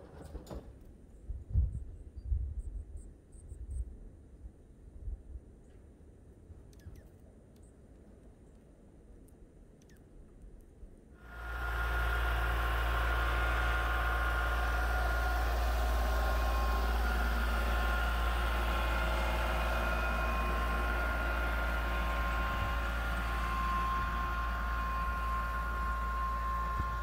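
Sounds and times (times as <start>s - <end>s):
steady high whine: 11.2s - 27.0s
tractor diesel engine running: 11.2s - 27.0s.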